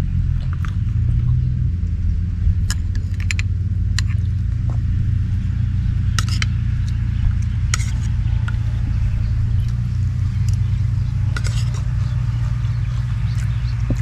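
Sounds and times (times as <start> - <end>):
steady low rumble: 0.0 - 14.0
spoon scraping a plate: 6.2 - 6.6, 7.7 - 8.7, 11.3 - 12.2.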